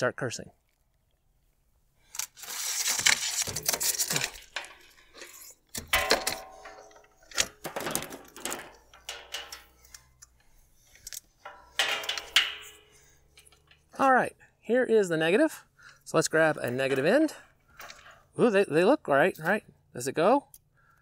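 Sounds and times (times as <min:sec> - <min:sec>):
wire and panel handling rustles: 0:02.0 - 0:14.0.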